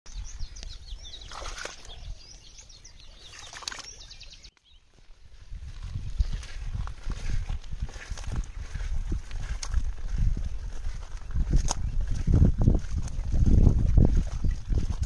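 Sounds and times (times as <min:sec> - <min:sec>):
small birds chirping: 0:00.1 - 0:15.0
water splashing: 0:01.2 - 0:02.3, 0:03.2 - 0:04.2
footsteps through grass: 0:04.6 - 0:15.0.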